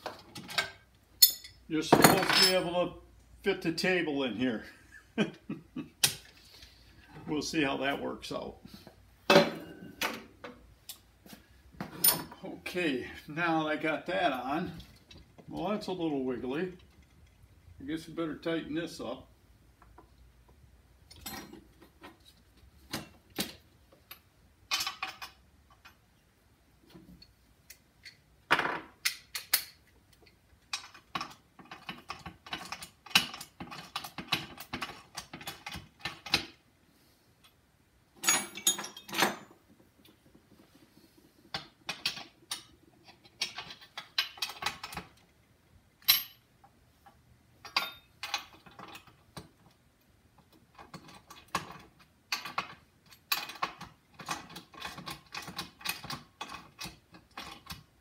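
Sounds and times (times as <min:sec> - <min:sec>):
tools and hardware clinking: 0:00.0 - 0:02.8, 0:11.8 - 0:12.4, 0:21.1 - 0:26.0, 0:38.2 - 0:40.2, 0:41.5 - 0:45.3, 0:46.0 - 0:49.6, 0:50.7 - 0:57.8.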